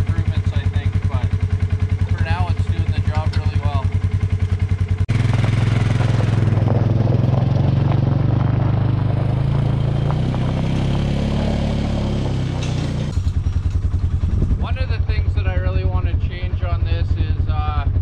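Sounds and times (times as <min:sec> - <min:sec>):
utility vehicle engine driving off: 0:00.0 - 0:15.2
light metal clanks: 0:12.6 - 0:13.9.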